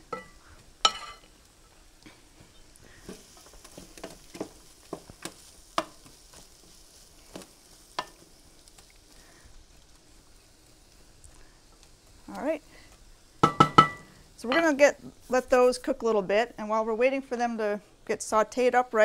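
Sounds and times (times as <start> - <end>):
vegetables sizzling in a skillet: 0.0 - 19.0
wooden spatula scraping a pan: 0.1 - 13.0, 14.1 - 16.2.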